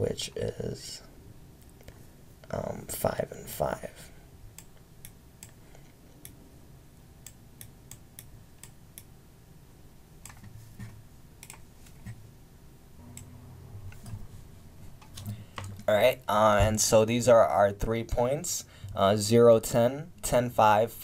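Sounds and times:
low steady hum: 0.0 - 21.0
computer mouse clicks: 10.2 - 10.5, 11.4 - 12.2.

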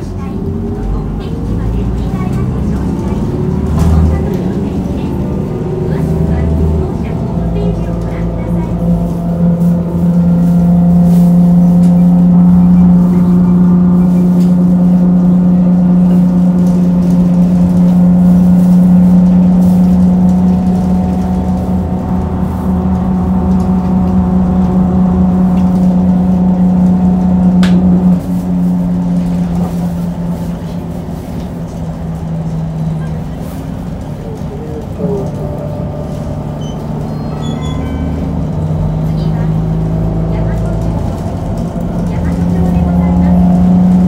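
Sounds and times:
bus drivetrain hum: 0.0 - 44.0.

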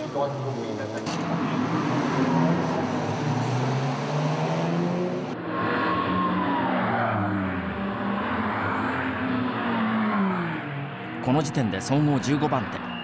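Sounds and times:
race car engine revving: 0.0 - 13.0
race car engines passing: 0.0 - 13.0.

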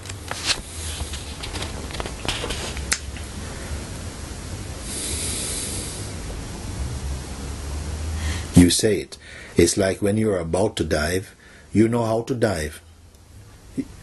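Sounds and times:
low room hum: 0.0 - 14.0
brief hiss: 4.8 - 6.2.

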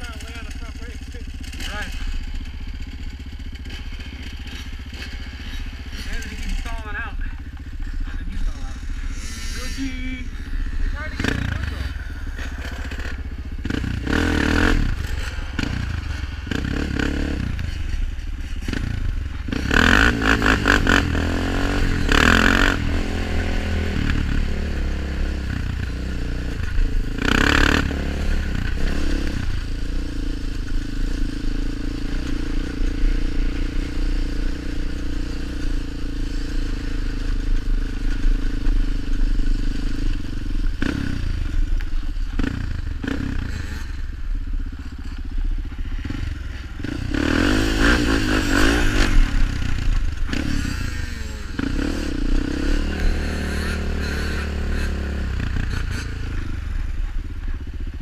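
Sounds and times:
quad engine revving: 0.0 - 44.3, 45.9 - 57.2.

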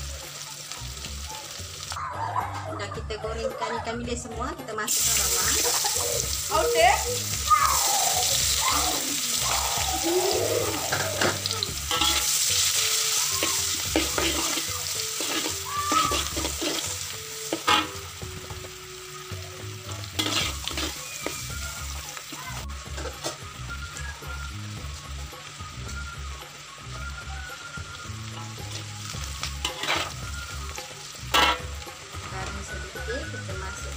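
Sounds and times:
onion sizzling in a wok: 0.0 - 2.1, 4.4 - 33.9
metal spatula scraping a pan: 10.7 - 18.1, 20.0 - 21.4, 22.2 - 23.5, 29.5 - 30.5, 31.2 - 31.8.

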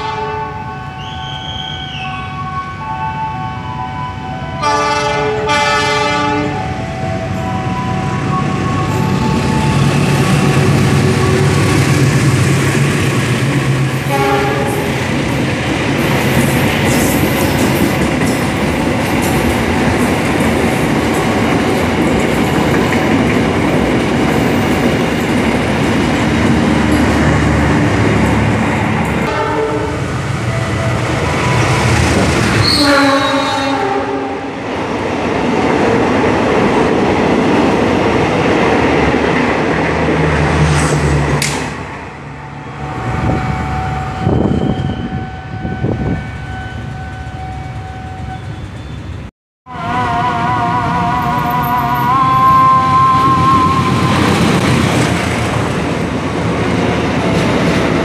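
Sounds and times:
diesel locomotive horn: 0.0 - 2.9, 4.5 - 12.1, 14.0 - 15.1, 29.2 - 34.6, 43.0 - 48.7, 49.7 - 55.0
train wheels rumbling on rail: 4.7 - 49.3, 50.0 - 58.0.

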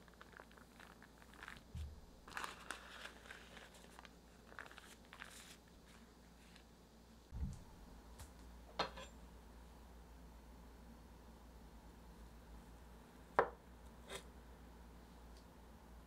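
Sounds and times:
baking paper rustling: 0.0 - 6.7
soft low thumps: 7.3 - 7.9.

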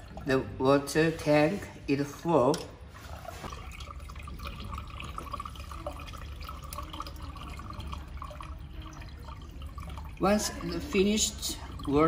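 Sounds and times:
water pouring from a jug: 0.0 - 0.6, 2.8 - 12.0.

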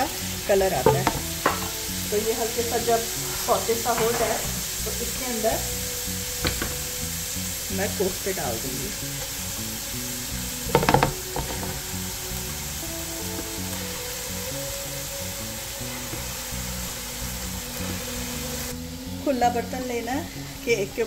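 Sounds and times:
meat sizzling in hot oil: 0.0 - 21.0
oil spattering: 0.8 - 1.9, 10.6 - 11.8.

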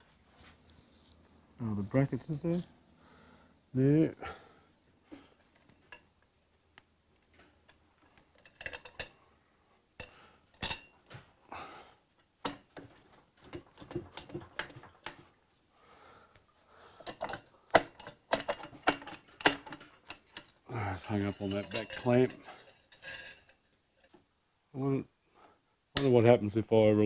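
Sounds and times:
metal exhaust pipes clinking: 17.0 - 24.2.

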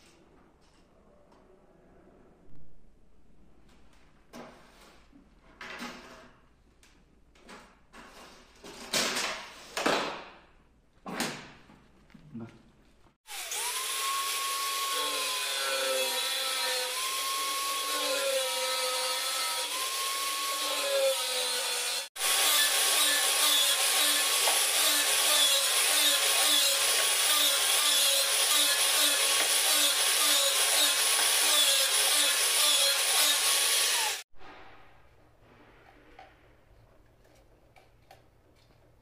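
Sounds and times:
angle grinder cutting pipe: 13.3 - 34.2.

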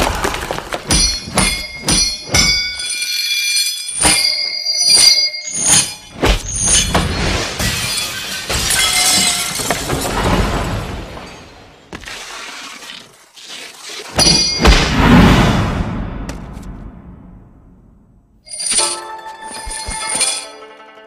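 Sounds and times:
metal rings clanging: 18.4 - 20.8.

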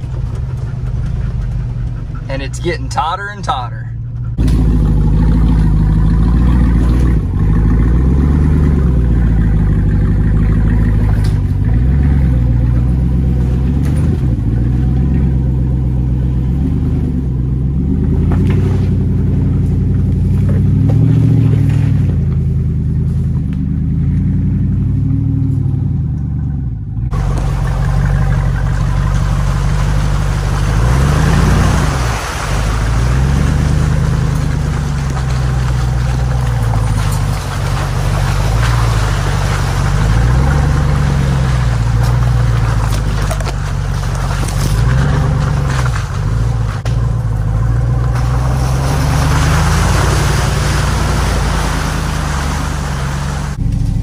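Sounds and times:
engine revving: 0.0 - 54.0
mud and brush rushing hiss: 27.1 - 54.0.

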